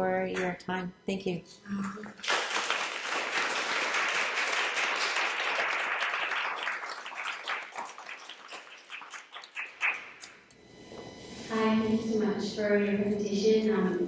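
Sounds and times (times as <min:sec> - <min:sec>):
audience applauding: 0:02.2 - 0:10.3.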